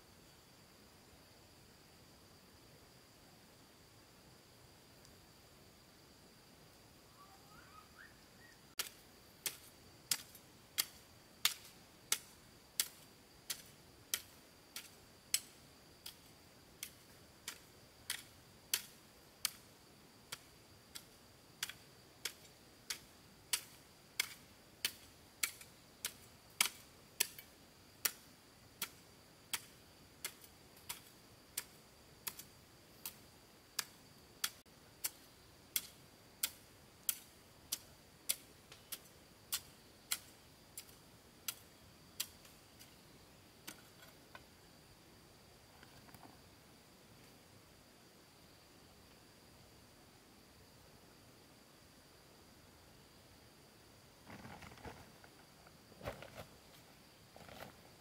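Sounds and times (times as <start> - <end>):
faint high-pitched tone: 7.0 - 8.7.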